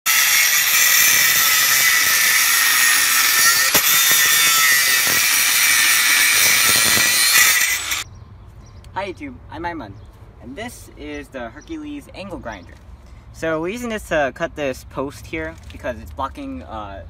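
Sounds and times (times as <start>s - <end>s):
angle grinder cutting steel: 0.1s - 8.0s.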